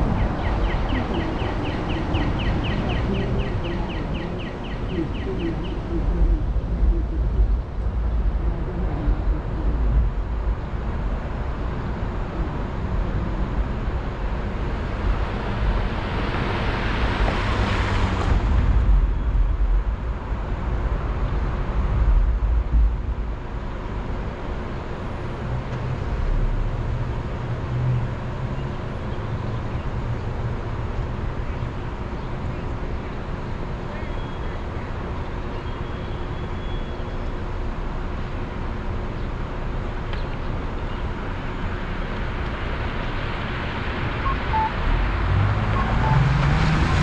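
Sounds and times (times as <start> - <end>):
street traffic rumble: 0.0 - 47.0
vehicle passing: 41.3 - 47.0.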